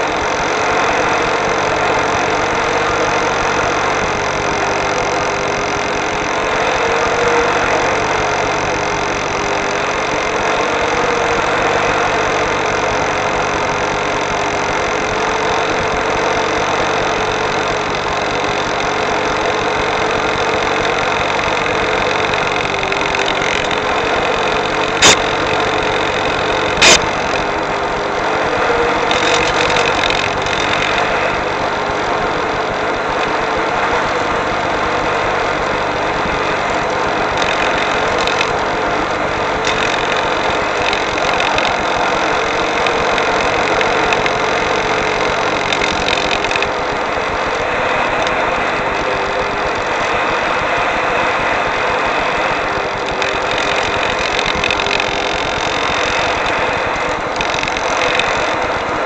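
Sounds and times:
electric glider whirring drone: 0.0s - 59.0s
sharp click: 0.9s - 27.6s, 29.0s - 31.4s, 35.6s - 38.6s, 39.6s - 46.8s, 53.0s - 58.9s.

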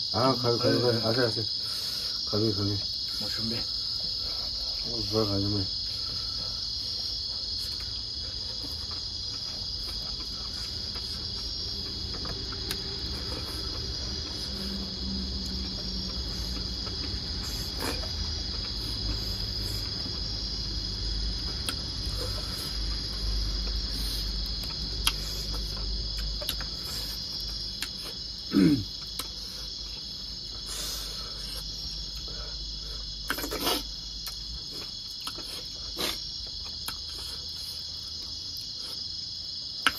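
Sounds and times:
high-pitched insect chorus: 0.0s - 39.9s
chewing clicks: 21.5s - 22.1s, 24.4s - 26.7s, 29.0s - 29.4s, 33.2s - 37.3s.

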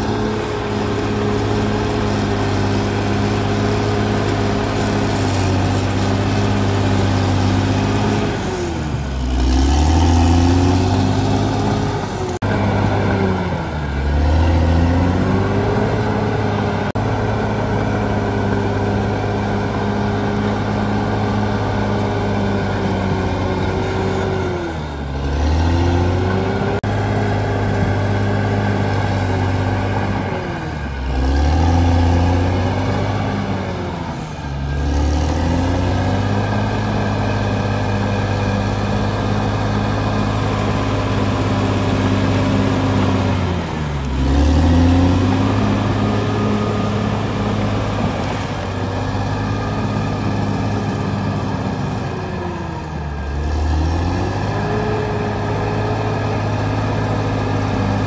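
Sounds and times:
bulldozer diesel engine: 0.0s - 58.0s.

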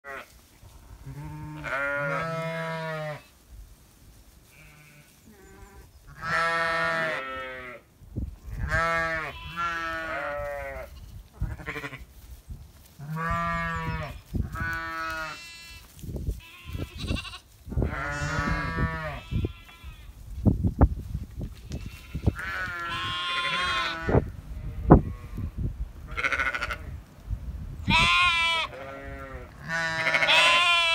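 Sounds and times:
sheep bleating: 1.0s - 3.3s, 4.5s - 7.8s, 8.6s - 12.0s, 13.0s - 20.1s, 21.8s - 25.4s, 26.1s - 26.8s, 27.9s - 30.9s
fainter higher bleats: 1.1s - 3.2s, 21.8s - 24.2s, 27.9s - 30.9s.

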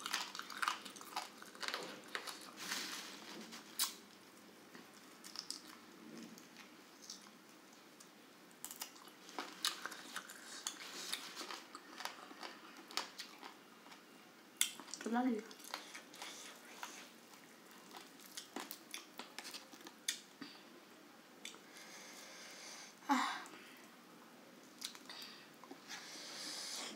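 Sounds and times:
chewing and biting chicken: 0.0s - 2.4s
crispy skin crunching: 0.0s - 4.1s, 4.8s - 7.3s, 14.6s - 20.3s.

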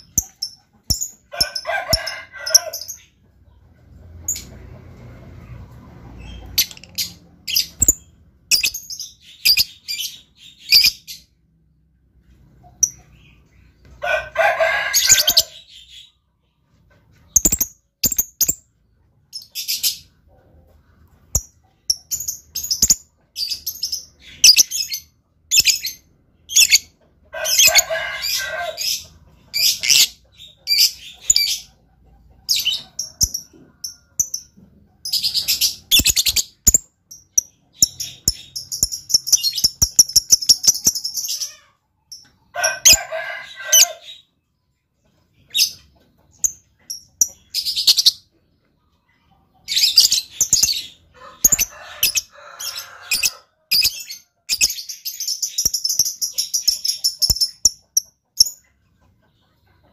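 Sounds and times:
lovebird chirping: 6.2s - 11.3s, 17.3s - 18.7s, 21.3s - 26.9s, 32.5s - 41.6s, 45.5s - 48.2s, 49.6s - 58.6s.

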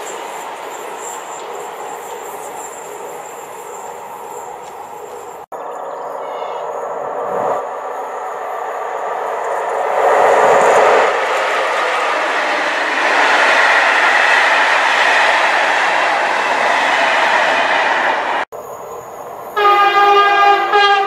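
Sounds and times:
train wheels clattering on rails: 0.0s - 5.5s
electric locomotive approaching: 0.0s - 21.0s.

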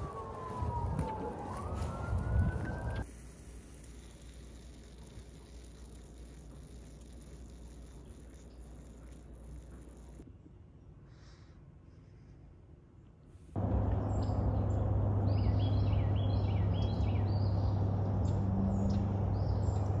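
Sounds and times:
birds chirping downward: 0.0s - 3.0s
low outdoor rumble: 0.0s - 10.3s, 13.6s - 20.0s.

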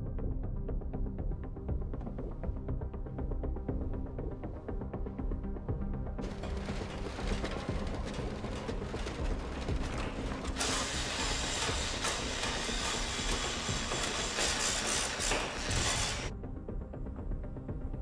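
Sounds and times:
low music drone: 0.0s - 18.0s
construction clatter: 6.2s - 16.3s
grinder cutting metal: 6.2s - 16.3s
wheelbarrows rattling: 6.2s - 16.3s.

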